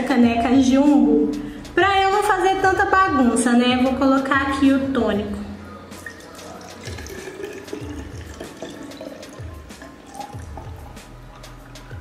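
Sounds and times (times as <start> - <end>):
background music with steady beat: 0.0 - 12.0
liquid trickling into bottle: 6.0 - 12.0.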